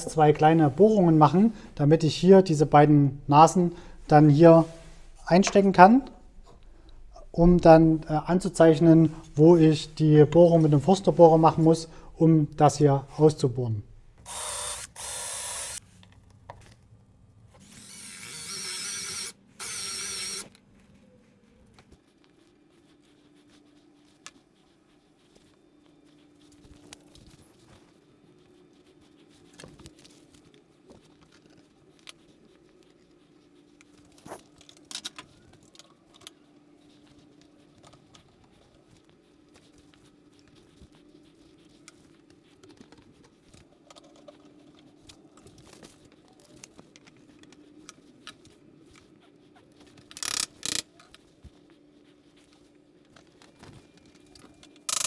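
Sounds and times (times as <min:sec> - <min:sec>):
faint steady hum: 0:00.0 - 0:55.0
tools clicking and tapping: 0:49.9 - 0:51.2, 0:54.4 - 0:55.0.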